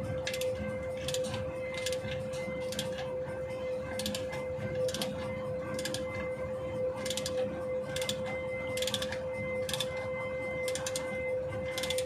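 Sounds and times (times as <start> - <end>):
steady hum: 0.0 - 12.0.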